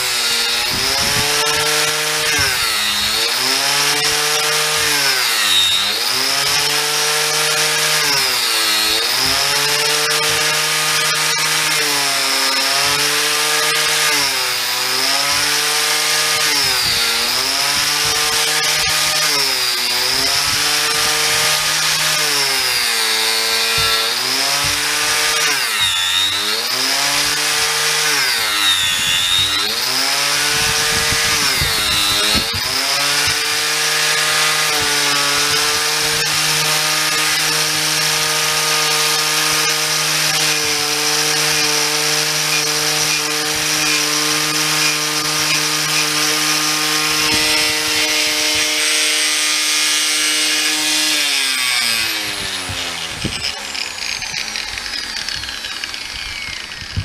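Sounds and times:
angle grinder cutting wood: 0.0s - 57.0s
rasping cutting noise: 0.0s - 57.0s.

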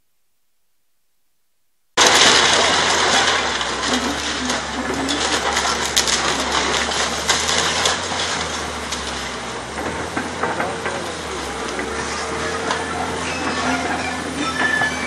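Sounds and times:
debris crashing down: 2.0s - 15.0s
diesel engine running: 2.0s - 15.0s.

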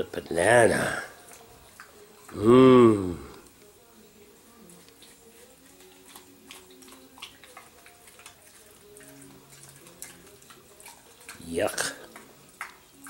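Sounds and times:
pig chewing and smacking: 0.8s - 2.4s, 4.6s - 13.0s.

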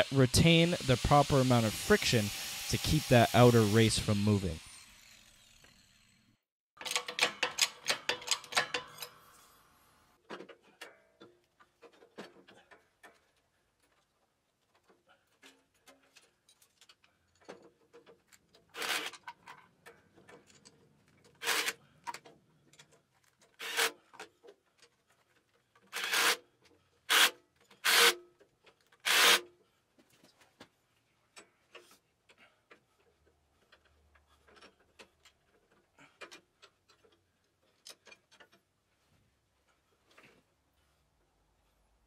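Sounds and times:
cordless power driver: 0.1s - 5.8s, 29.0s - 29.4s.

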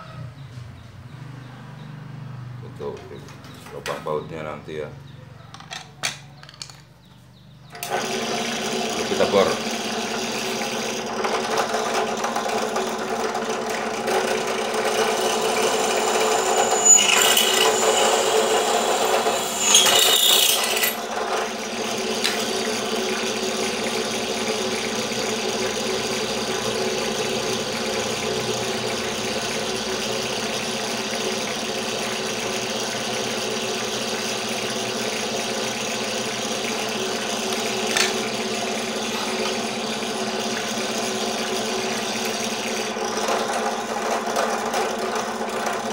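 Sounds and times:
drill press motor hum: 7.7s - 45.9s
metallic scraping and clatter: 15.3s - 21.0s.

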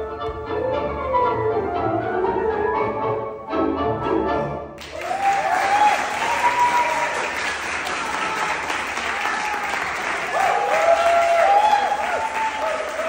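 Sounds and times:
audience applauding: 4.8s - 13.0s
whoops and cheers: 4.8s - 13.0s.

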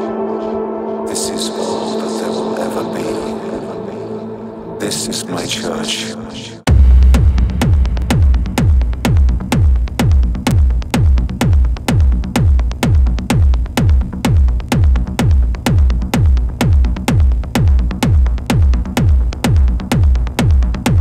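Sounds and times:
electronic kick drum: 6.7s - 21.0s.

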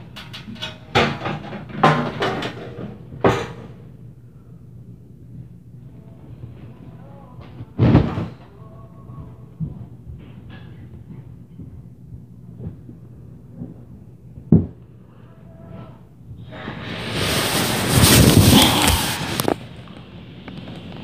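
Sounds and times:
faint muffled voices: 5.8s - 10.2s, 15.0s - 16.2s
dull thumps through ceiling: 7.5s - 8.4s
loud rushing hiss: 16.5s - 19.7s.

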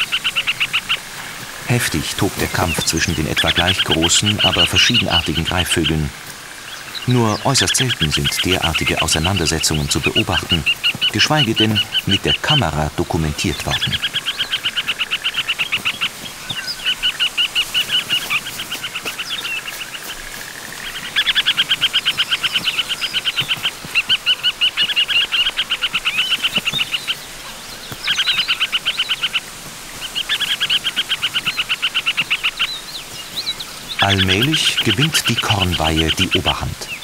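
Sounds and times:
harriers alarm chatter: 34.0s - 37.0s.

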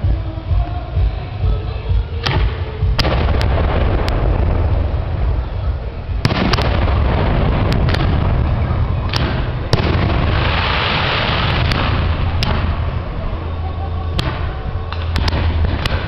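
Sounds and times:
low rumble: 0.0s - 16.0s
fireworks bangs: 2.2s - 16.0s
fireworks hiss: 3.0s - 13.6s.

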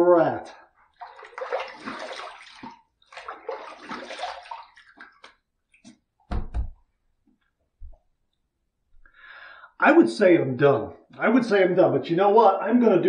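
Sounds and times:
water dripping: 0.9s - 6.0s
water splashing on face: 1.0s - 6.0s
dull thumps: 6.2s - 6.9s.

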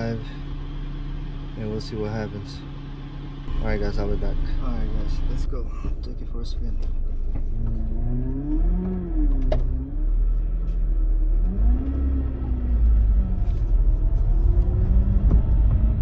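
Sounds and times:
car engine revving: 0.0s - 16.0s
road rumble: 0.0s - 16.0s.

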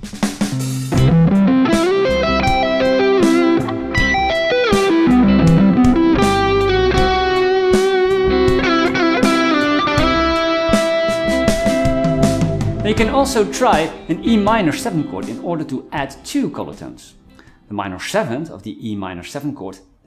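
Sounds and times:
electric guitar arpeggios: 1.0s - 16.5s.

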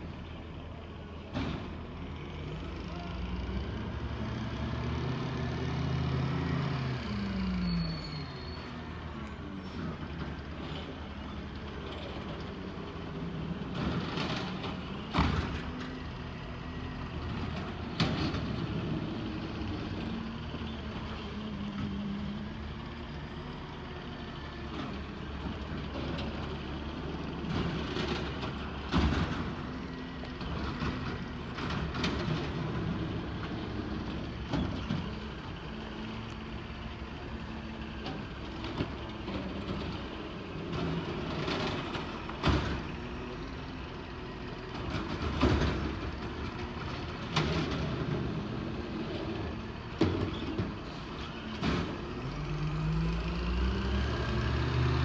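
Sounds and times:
garbage truck diesel engine: 0.0s - 55.0s.

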